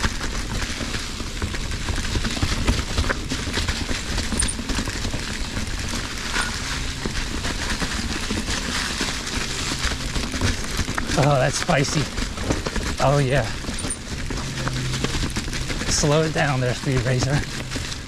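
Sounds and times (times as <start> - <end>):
bike clattering over bumps: 0.0 - 18.0
bike tyres rumbling on dirt: 0.0 - 18.0.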